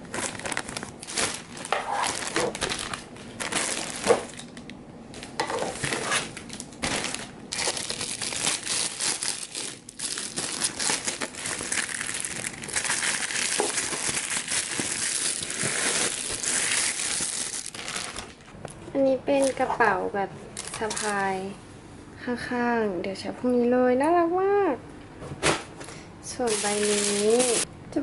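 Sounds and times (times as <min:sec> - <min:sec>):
plastic bag crinkling: 0:00.0 - 0:18.6, 0:20.5 - 0:21.4, 0:26.4 - 0:27.7.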